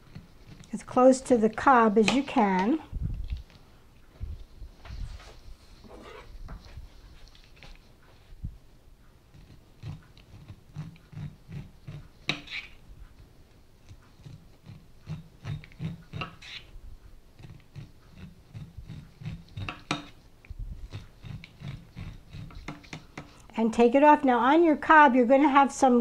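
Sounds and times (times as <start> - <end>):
knife cutting corn kernels: 0.0 - 2.8, 9.3 - 12.8, 13.8 - 16.7, 17.4 - 20.2, 20.9 - 23.4.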